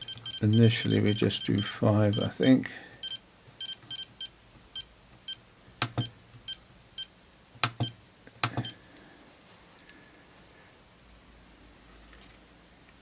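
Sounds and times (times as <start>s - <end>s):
battery charger beeping: 0.0s - 5.4s.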